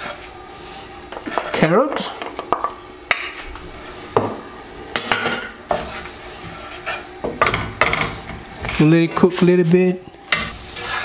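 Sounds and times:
faint sizzle: 0:00.0 - 0:11.0
spatula knocking and scraping pan: 0:05.0 - 0:09.4.

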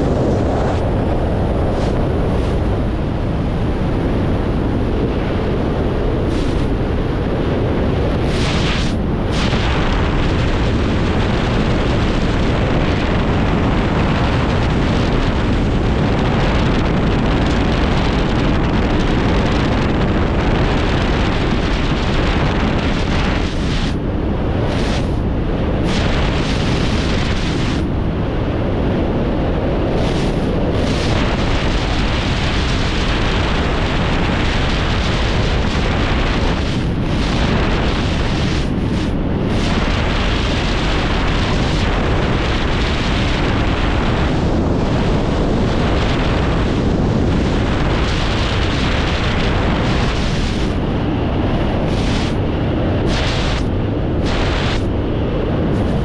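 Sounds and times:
freefall wind rushing: 0:00.0 - 0:56.0.

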